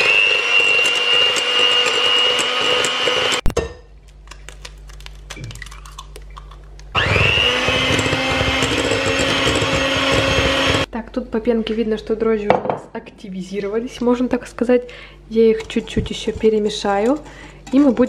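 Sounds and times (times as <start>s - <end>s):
electric mixer whining: 0.0s - 3.5s, 7.0s - 10.9s.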